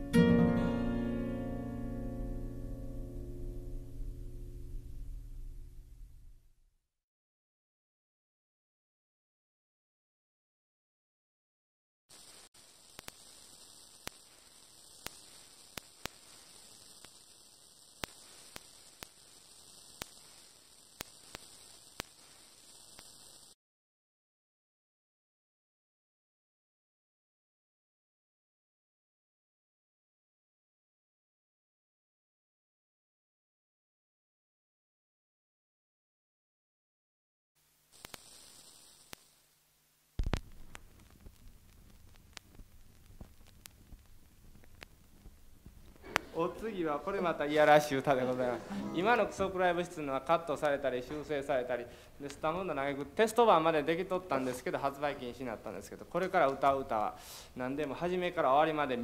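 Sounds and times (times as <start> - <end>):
old recording hiss and hum: 0.0 - 6.7, 12.1 - 23.6, 37.6 - 59.0
low hum: 2.0 - 6.7
sharp record clicks: 12.1 - 23.6, 37.9 - 39.4, 40.2 - 48.4, 52.2 - 57.0.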